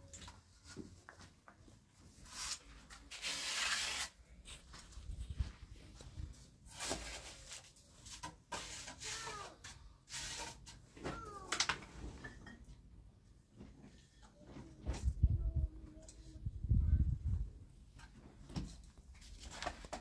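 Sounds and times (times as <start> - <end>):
rubbing and scraping by hand: 2.0 - 12.3.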